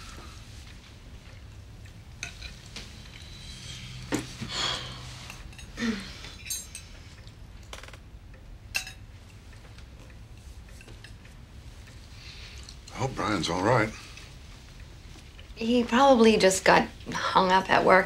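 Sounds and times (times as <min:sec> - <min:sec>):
room hum: 0:00.0 - 0:18.0
cutlery clinking on plates: 0:05.3 - 0:07.0, 0:08.7 - 0:09.0.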